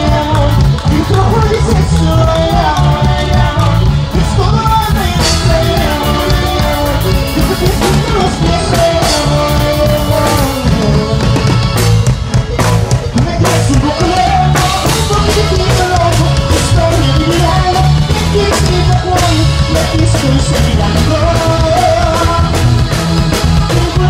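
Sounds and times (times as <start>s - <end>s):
live band playing: 0.0s - 24.0s
person singing: 0.0s - 24.0s.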